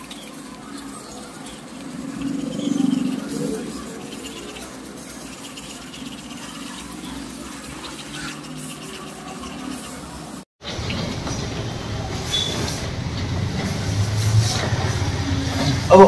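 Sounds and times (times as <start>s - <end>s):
toothbrush scrubbing teeth: 0.0s - 10.4s.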